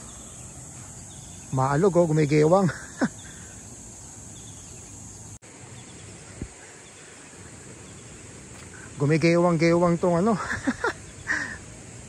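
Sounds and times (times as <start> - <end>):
high-pitched insect drone: 0.0 - 5.4.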